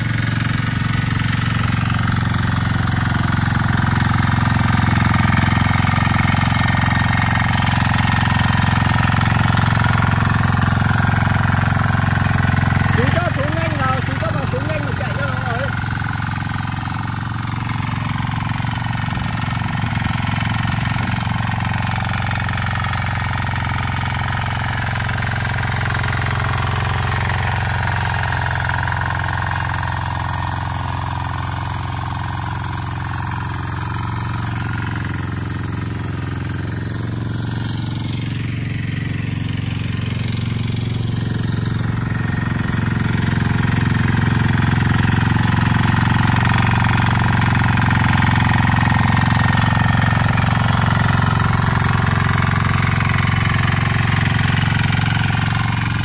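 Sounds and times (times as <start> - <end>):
tiller diesel engine running: 0.0 - 56.0.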